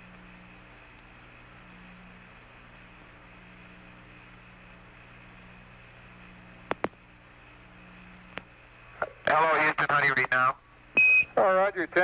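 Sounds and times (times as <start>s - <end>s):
radio static hiss: 6.3s - 12.0s.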